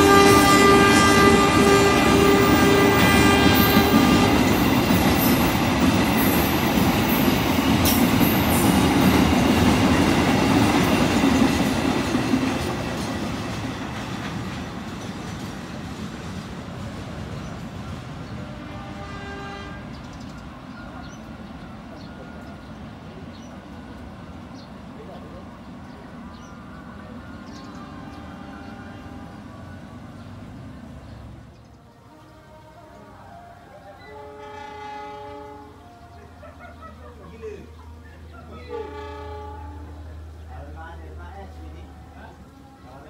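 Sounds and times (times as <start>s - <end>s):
locomotive horn: 0.0s - 5.0s, 18.2s - 20.2s, 27.4s - 30.0s, 31.8s - 36.4s, 38.6s - 40.4s, 41.6s - 43.0s
freight train rolling past: 0.0s - 43.0s.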